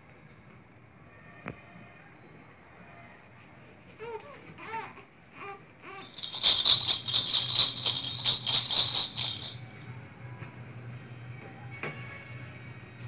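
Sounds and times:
baby cooing: 4.0 - 7.9
baby rattle shaken: 5.8 - 9.8.

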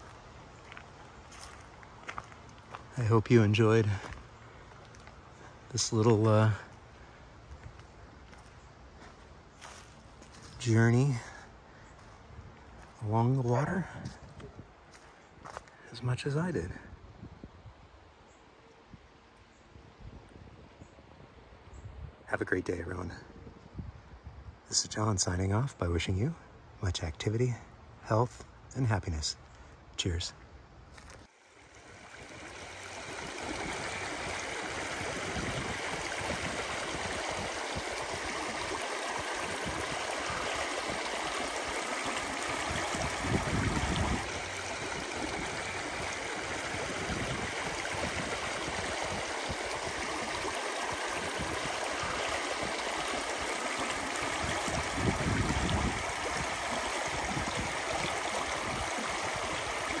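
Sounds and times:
creek water flowing: 0.0 - 16.7, 31.0 - 60.0.

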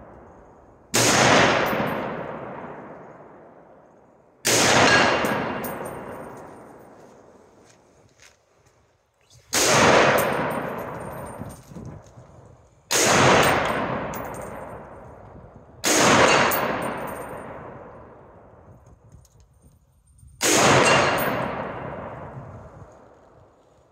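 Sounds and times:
rifle shots: 0.9 - 3.5, 4.4 - 7.4, 9.5 - 11.4, 12.9 - 15.0, 15.8 - 18.2, 20.4 - 22.4.

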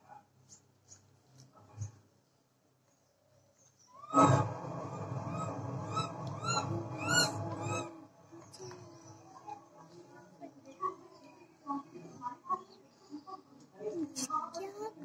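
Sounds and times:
macaque calling: 5.9 - 7.9.

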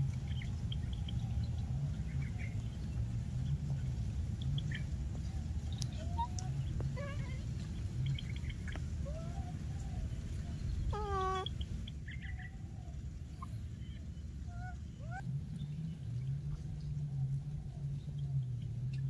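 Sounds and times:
low steady hum: 0.0 - 19.0
macaque coo: 10.8 - 11.5
baby macaques squeaking: 10.9 - 11.6.

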